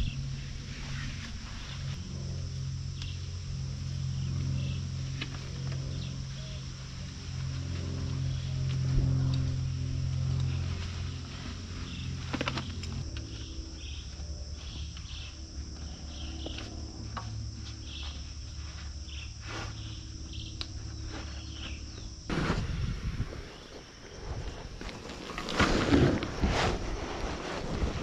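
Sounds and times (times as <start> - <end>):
insects buzzing: 0.0 - 28.0
low steady hum: 0.0 - 28.0
short insect chirps: 11.8 - 25.0.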